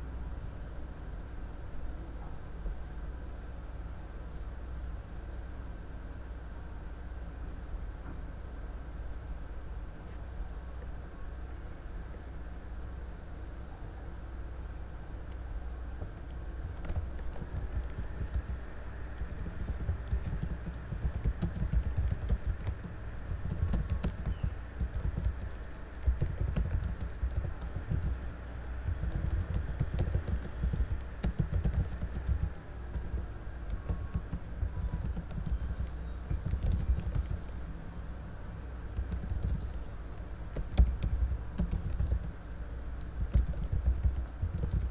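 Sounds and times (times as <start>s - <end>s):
keyboard typing: 16.0s - 37.7s, 38.9s - 42.4s, 43.0s - 44.9s.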